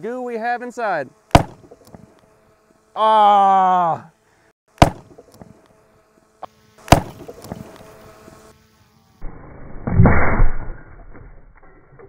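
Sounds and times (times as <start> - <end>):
shotgun blast: 1.3 - 1.8, 4.8 - 5.2, 6.9 - 7.5.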